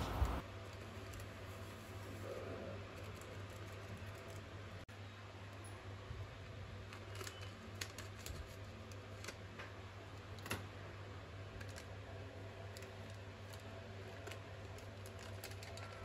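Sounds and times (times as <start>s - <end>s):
steady low hum: 0.0s - 6.9s
crinkles and clicks of foil: 0.4s - 4.8s, 6.8s - 10.6s, 11.4s - 16.0s
scissors snipping foil packet: 12.7s - 16.0s.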